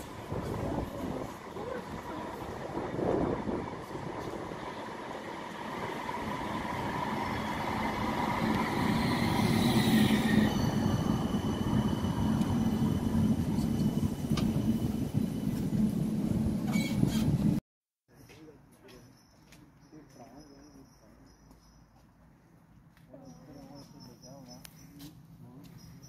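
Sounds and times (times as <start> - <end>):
tram rumble: 0.0 - 17.6.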